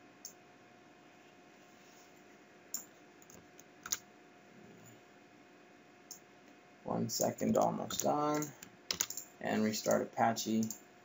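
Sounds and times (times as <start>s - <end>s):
room hiss: 0.0s - 11.0s
computer clicks: 7.2s - 10.8s.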